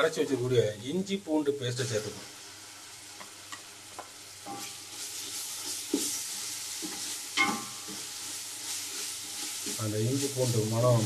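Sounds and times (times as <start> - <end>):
masala sizzling in oil: 0.0 - 11.0
spatula clacking on pot: 6.8 - 8.1.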